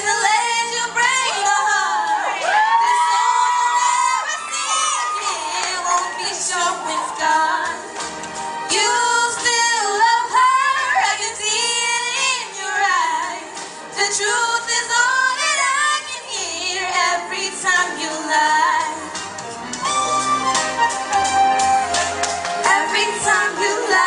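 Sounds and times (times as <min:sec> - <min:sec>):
two women singing: 0:00.0 - 0:08.0, 0:08.7 - 0:19.2, 0:22.6 - 0:24.0.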